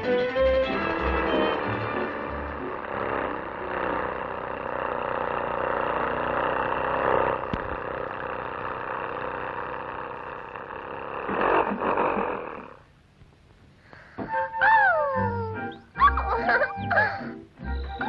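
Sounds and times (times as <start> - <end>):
cartoon car engine clatter: 0.4 - 12.9.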